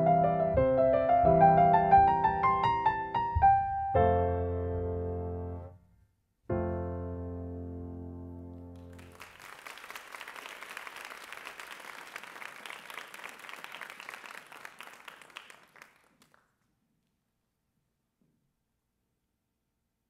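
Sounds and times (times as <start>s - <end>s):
audience applauding: 8.7s - 16.7s.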